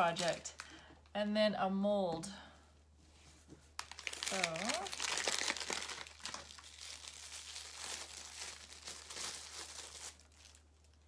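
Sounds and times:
foil and plastic wrapper crinkling: 0.0 - 0.9, 3.7 - 11.0.

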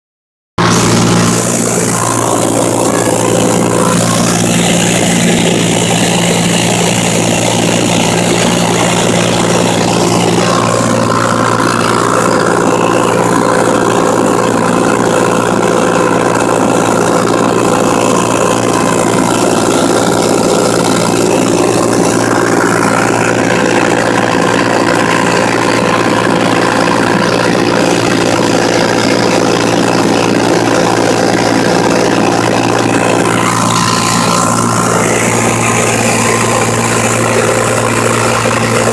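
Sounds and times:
airplane engine and propeller droning: 0.6 - 38.9.

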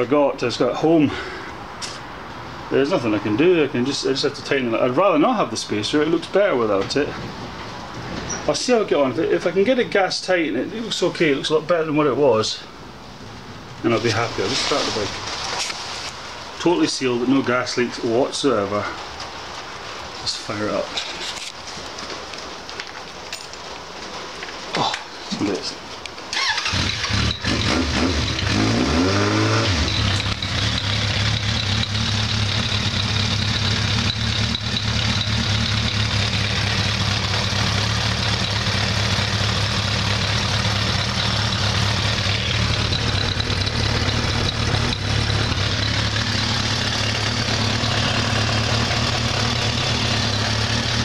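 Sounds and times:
motorcycle engine revving and idling: 26.3 - 51.0.

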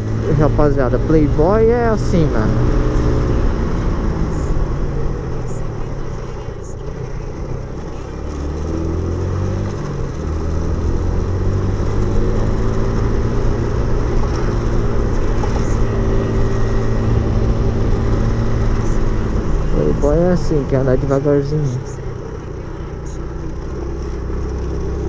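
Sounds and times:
motorcycle engine running: 0.0 - 25.0.

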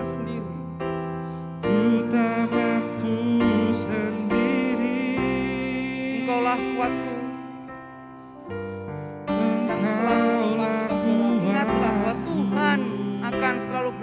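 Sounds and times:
sustained keyboard chords: 0.0 - 14.0
person singing: 1.6 - 7.7, 9.3 - 14.0.

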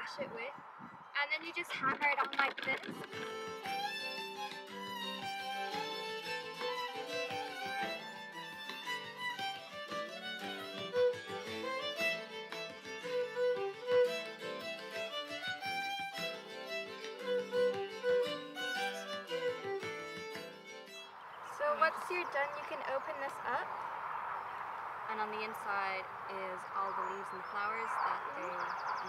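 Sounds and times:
instrumental music with quick notes: 3.1 - 21.1.

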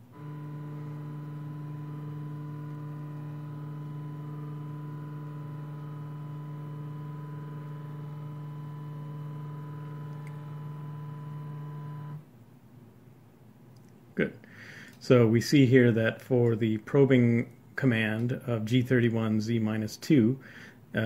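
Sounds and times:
stepper motor whining: 0.0 - 12.2.

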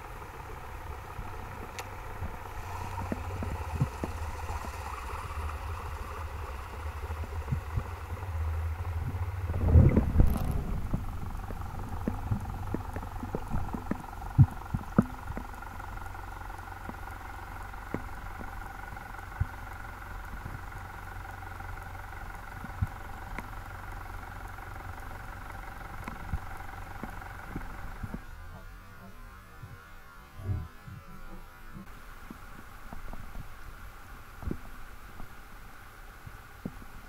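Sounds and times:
steady mechanical whine: 0.0 - 37.0
low underwater rumble: 1.0 - 29.2.

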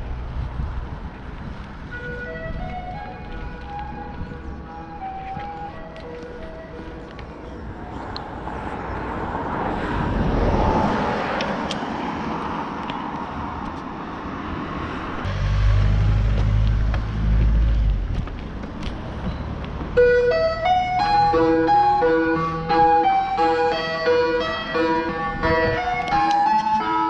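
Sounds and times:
wind and road noise hiss: 0.0 - 20.0
wind buffeting microphone: 0.0 - 20.0, 24.8 - 26.4.

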